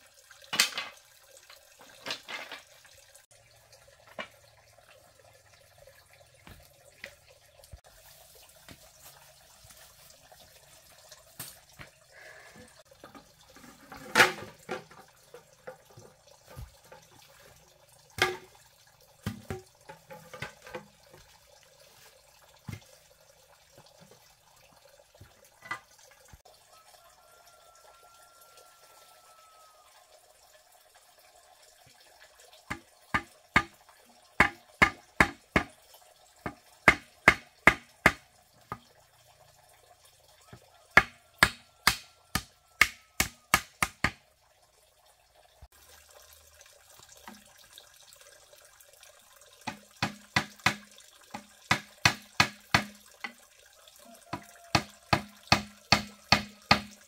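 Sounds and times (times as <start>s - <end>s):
bamboo poles clattering and knocking: 0.4s - 3.0s, 3.9s - 5.0s, 6.4s - 12.0s, 12.6s - 23.1s, 25.2s - 26.4s, 32.6s - 35.8s, 36.4s - 39.1s, 40.4s - 44.2s, 49.6s - 57.0s.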